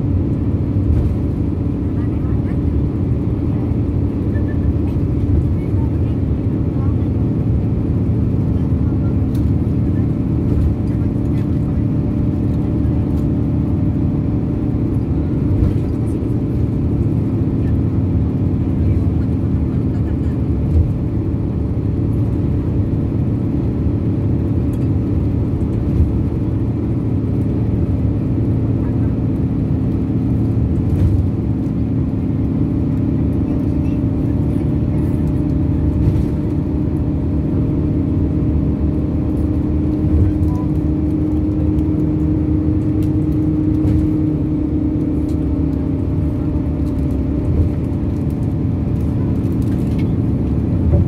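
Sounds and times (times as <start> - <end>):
bus engine and tyres rumbling: 0.0 - 51.0.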